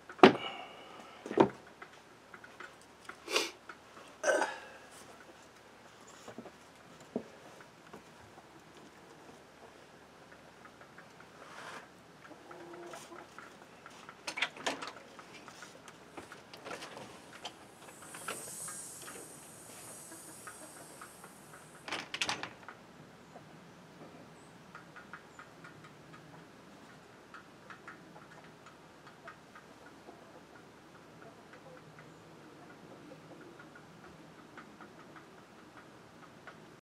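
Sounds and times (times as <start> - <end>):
door opening and shutting: 21.8 - 22.6.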